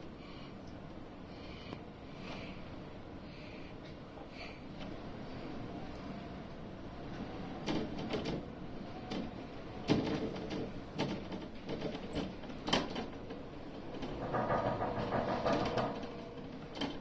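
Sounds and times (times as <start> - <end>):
gondola cabin rumbling on cable: 4.7 - 17.0
knocks and clicks of rollers: 7.1 - 17.0.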